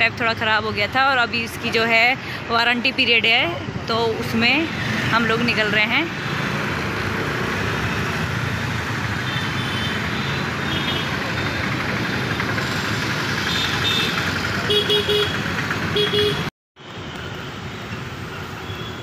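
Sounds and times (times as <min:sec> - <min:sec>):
city traffic and engine noise: 0:00.0 - 0:19.0.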